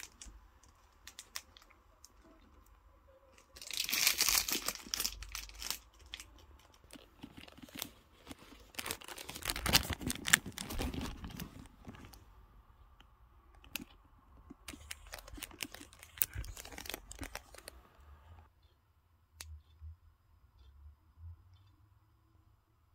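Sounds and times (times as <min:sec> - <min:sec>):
paper rustling and crinkling: 0:03.3 - 0:12.2, 0:14.6 - 0:18.0.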